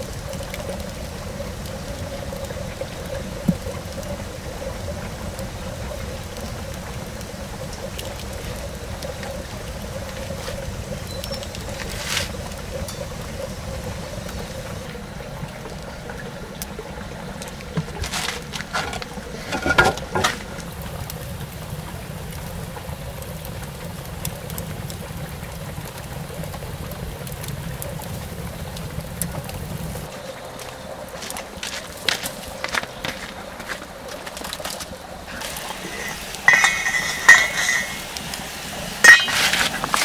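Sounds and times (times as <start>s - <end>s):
fire crackles: 0.0s - 40.0s
wood fire rumbling: 0.0s - 40.0s.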